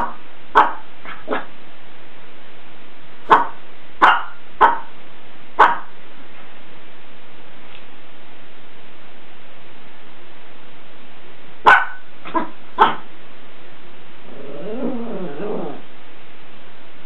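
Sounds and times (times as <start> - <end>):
small dog barking: 0.0 - 1.5, 3.3 - 5.0, 5.6 - 6.0, 11.6 - 13.1
dog whining growl: 14.2 - 16.0.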